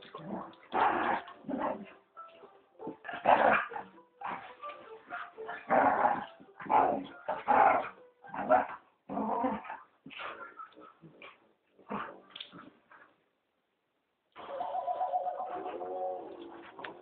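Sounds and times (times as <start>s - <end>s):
dogs barking and yelping: 2.8s - 12.8s.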